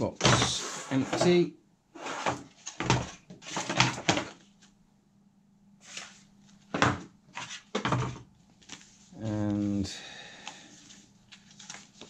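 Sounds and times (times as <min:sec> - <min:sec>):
packaging rustle: 0:10.8 - 0:12.0.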